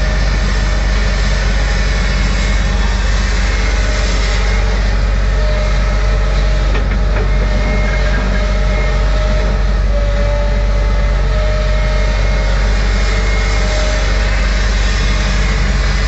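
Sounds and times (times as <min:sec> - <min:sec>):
excavator diesel engine running: 0:01.6 - 0:16.0
faint whine: 0:04.6 - 0:14.2
short knocks: 0:06.7 - 0:09.6.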